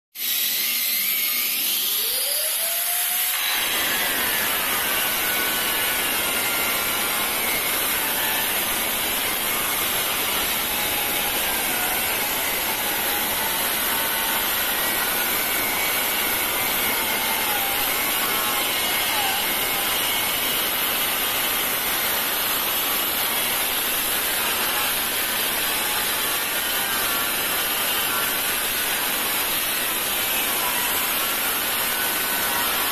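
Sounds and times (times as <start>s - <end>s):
angle grinder cutting tile: 0.2s - 32.9s.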